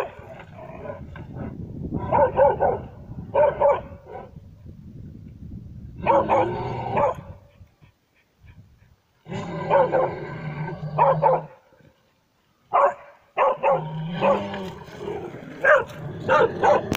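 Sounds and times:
dog barking: 2.1 - 4.0, 6.0 - 7.3, 9.7 - 10.1, 11.0 - 11.6, 12.7 - 14.5, 15.6 - 16.9.

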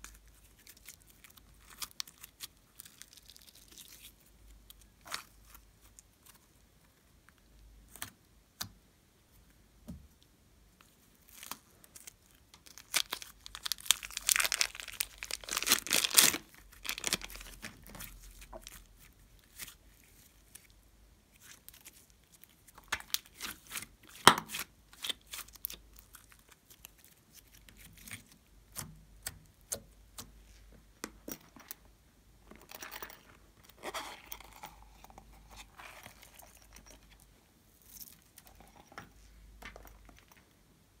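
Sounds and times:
slime crackling and tearing: 0.3 - 6.4, 11.3 - 20.7, 21.3 - 29.7.

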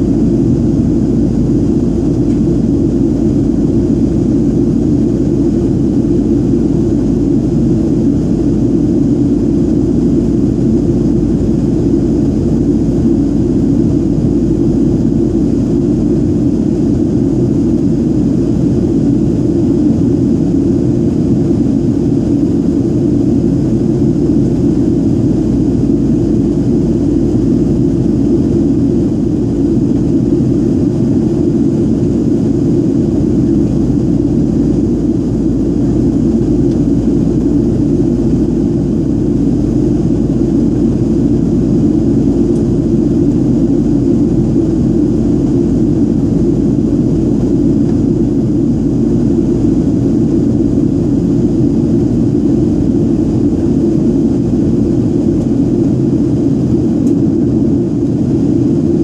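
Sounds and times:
jet cabin rumble: 0.0 - 59.0.

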